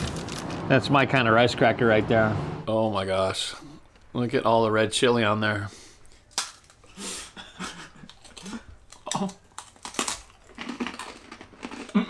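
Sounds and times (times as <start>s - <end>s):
rice crackers crunching: 0.0s - 0.8s, 8.0s - 12.0s.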